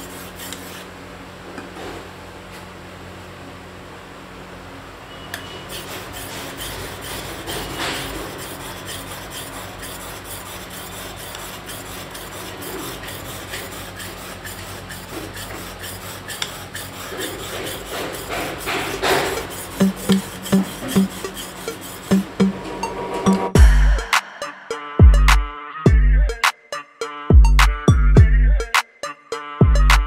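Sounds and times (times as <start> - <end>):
steady low hum: 5.7 - 26.4.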